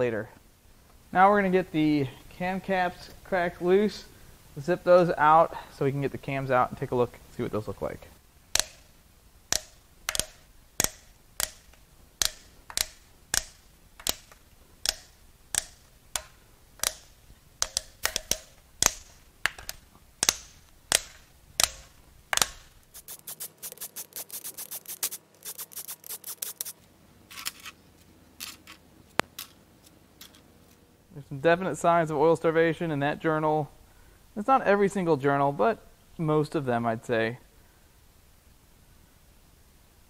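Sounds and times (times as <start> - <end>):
bolts cracking loose: 8.5 - 22.8
ratchet wrench clicking: 8.6 - 8.9, 9.5 - 21.8.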